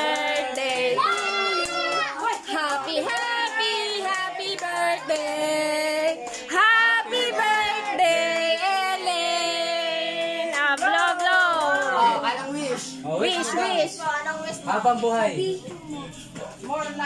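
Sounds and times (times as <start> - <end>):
women and children singing: 0.0 - 12.1.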